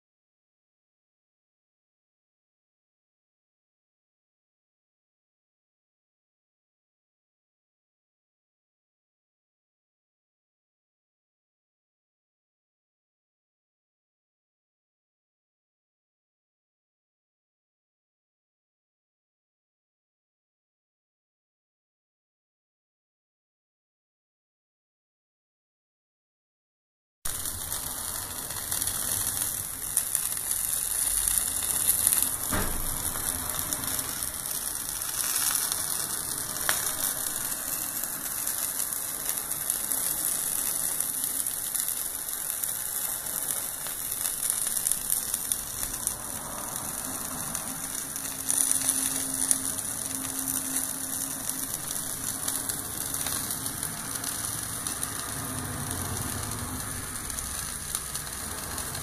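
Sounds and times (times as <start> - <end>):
sausages sizzling on a grill: 27.3 - 59.0.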